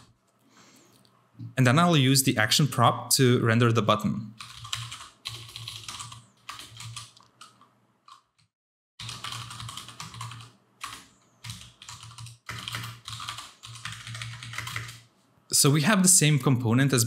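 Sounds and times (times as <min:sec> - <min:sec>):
typing on computer keyboard: 0:04.4 - 0:15.1.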